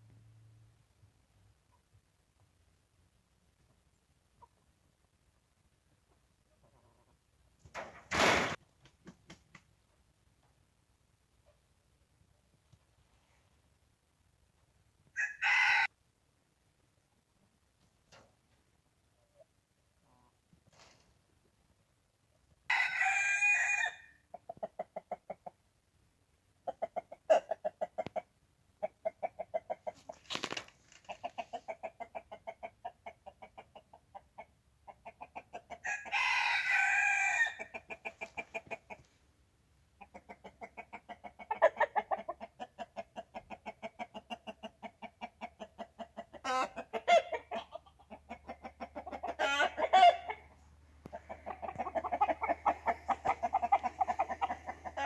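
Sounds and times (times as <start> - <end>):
rooster crowing: 15.2 - 15.9, 22.7 - 24.1, 35.8 - 37.7
chickens clucking: 24.3 - 25.7, 26.5 - 35.8, 37.6 - 39.2, 39.9 - 55.0.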